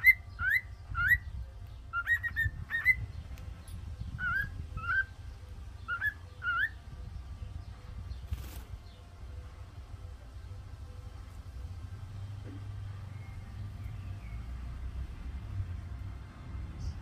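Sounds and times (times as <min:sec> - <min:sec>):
cockatiel whistling calls: 0:00.0 - 0:01.2, 0:01.9 - 0:03.1, 0:04.2 - 0:05.1, 0:05.9 - 0:06.8
steady low rumble: 0:00.0 - 0:17.0.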